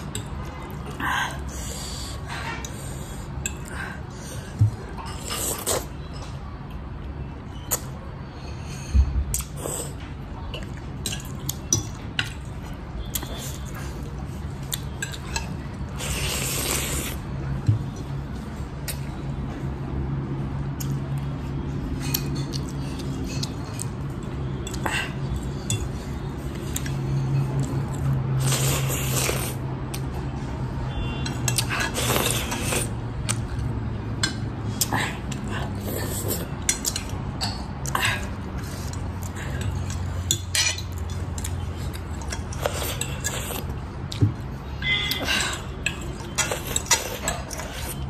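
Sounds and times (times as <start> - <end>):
slurping noodles: 16.0 - 17.2, 28.4 - 29.6.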